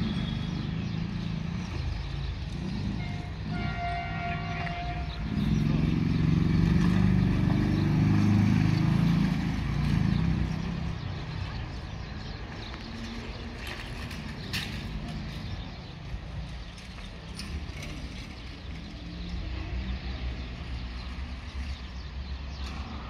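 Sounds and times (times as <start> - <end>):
motorcycle engine pulling away: 5.2 - 11.1.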